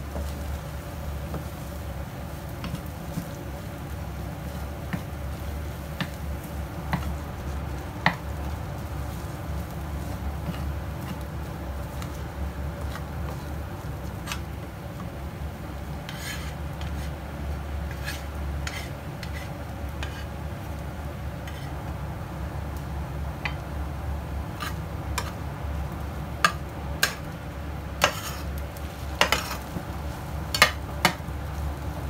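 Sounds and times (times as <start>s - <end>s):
wooden spatula scraping a frying pan: 1.2s - 3.7s, 4.3s - 15.2s, 15.8s - 20.8s, 21.4s - 22.0s, 24.5s - 25.4s, 26.4s - 27.2s, 28.0s - 31.2s
spatula tapping against pan: 6.0s - 6.2s, 8.0s - 8.3s, 26.4s - 27.2s, 30.5s - 31.2s.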